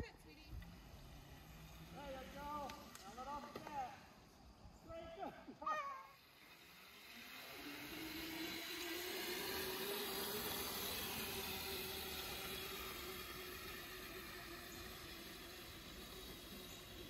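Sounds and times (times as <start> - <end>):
electric motor whining: 6.0 - 17.0.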